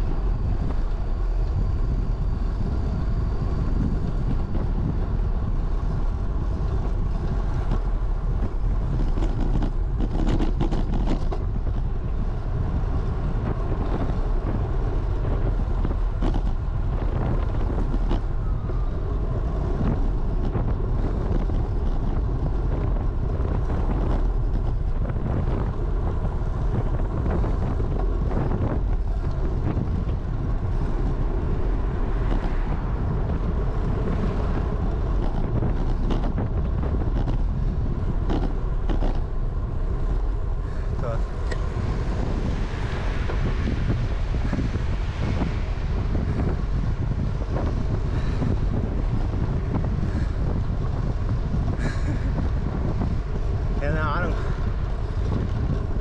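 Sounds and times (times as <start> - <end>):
wind rumble on microphone: 0.0 - 56.0.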